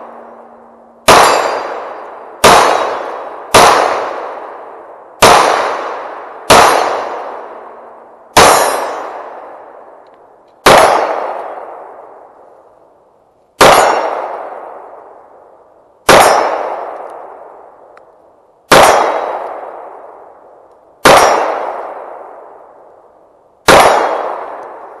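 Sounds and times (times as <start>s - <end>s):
pistol shots: 1.0s - 10.0s, 10.6s - 12.4s, 13.6s - 15.3s, 16.0s - 17.9s, 18.7s - 22.8s, 23.6s - 25.0s.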